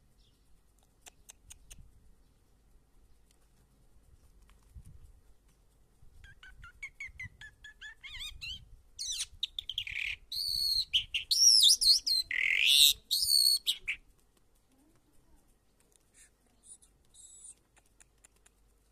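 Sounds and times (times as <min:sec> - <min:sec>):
lark singing: 0:06.3 - 0:14.0.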